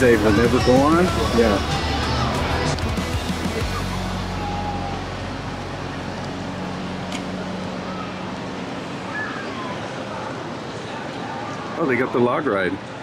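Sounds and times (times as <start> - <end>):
low mechanical hum: 3.6 - 11.8.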